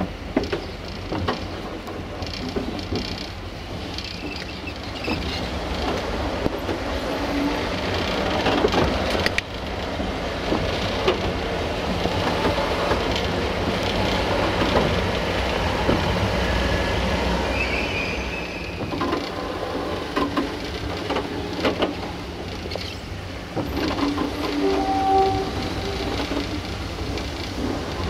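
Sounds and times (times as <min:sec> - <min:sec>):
sharp clicks and knocks: 0:00.0 - 0:06.8, 0:07.7 - 0:16.1, 0:18.8 - 0:19.4, 0:20.0 - 0:24.7
wheel and rail noise: 0:00.0 - 0:28.0.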